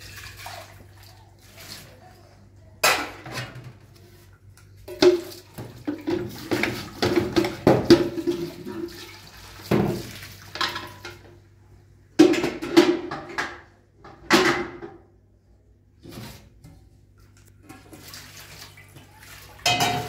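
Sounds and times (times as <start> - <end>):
tap water splashing into a pot: 4.9 - 11.3, 17.6 - 20.0
metal pot clanking: 19.6 - 20.0.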